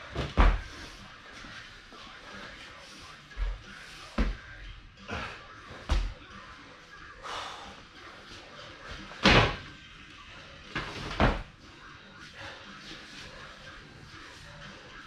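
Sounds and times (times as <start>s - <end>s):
hands and feet hitting floor: 0.1s - 0.8s, 5.7s - 6.2s.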